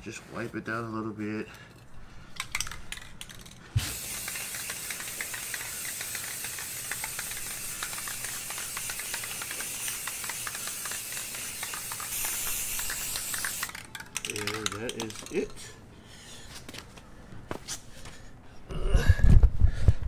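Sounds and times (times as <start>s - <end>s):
spray can hissing: 2.4s - 15.4s.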